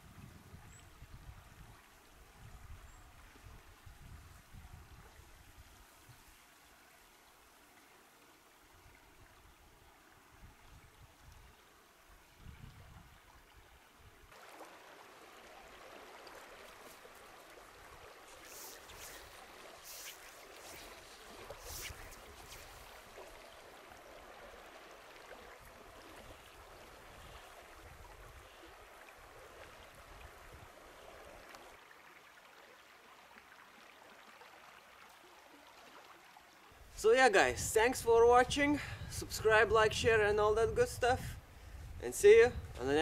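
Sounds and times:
flowing river water: 0.0s - 37.5s
short swishes: 18.3s - 23.0s.

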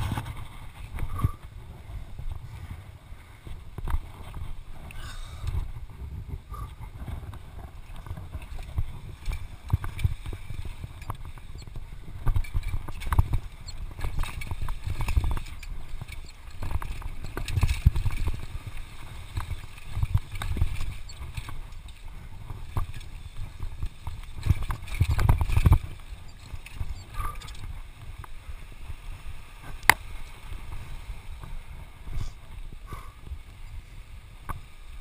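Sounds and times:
wind rumbling on microphone: 0.0s - 35.0s
tyre noise on dirt: 3.5s - 33.7s
bike rattling and knocking: 5.5s - 28.4s.

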